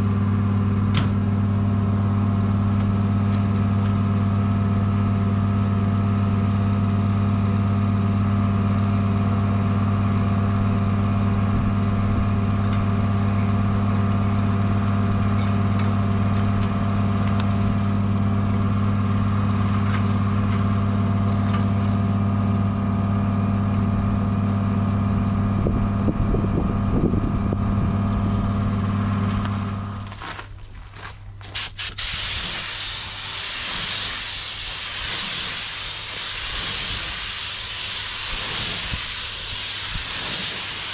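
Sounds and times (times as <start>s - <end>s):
machine hum: 0.0s - 31.5s
loud hiss: 31.6s - 40.9s.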